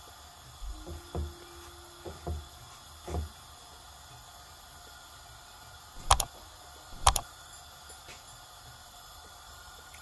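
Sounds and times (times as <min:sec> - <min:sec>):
mouse click sound effects: 0:06.0 - 0:06.3, 0:07.0 - 0:07.2.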